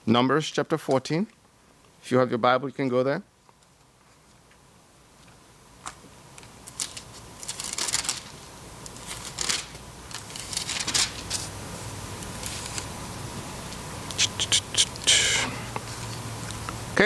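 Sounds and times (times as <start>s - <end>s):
pages being leafed through: 5.8s - 13.0s.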